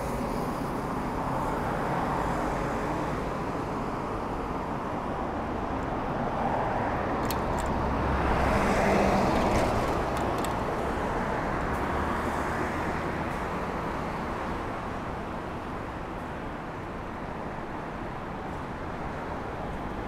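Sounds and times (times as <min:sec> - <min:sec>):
road traffic noise: 0:00.0 - 0:20.0
car passing: 0:06.4 - 0:12.8.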